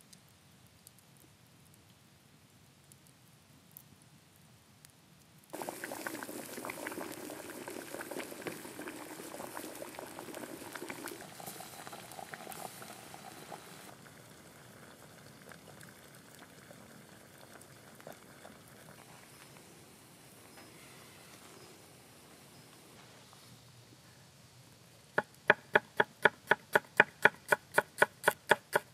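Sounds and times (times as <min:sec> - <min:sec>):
water boiling hard in a pot: 0:05.5 - 0:19.4.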